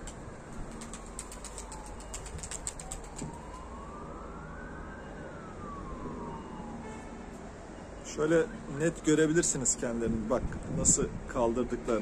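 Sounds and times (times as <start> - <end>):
siren wailing: 1.0 - 8.7
low wind rumble: 9.8 - 11.8.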